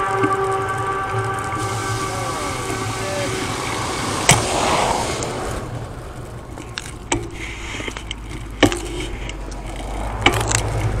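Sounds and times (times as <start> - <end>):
bike rolling rumble: 0.0 - 11.0
bike camera rattles and clicks: 5.2 - 11.0.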